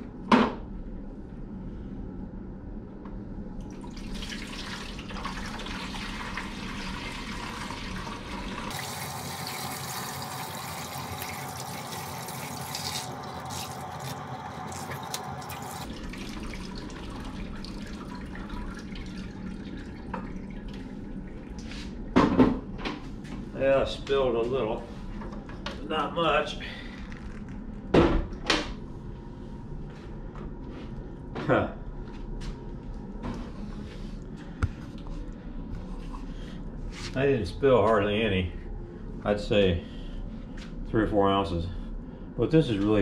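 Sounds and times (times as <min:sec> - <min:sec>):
water pouring into plastic bucket: 0:03.7 - 0:21.0.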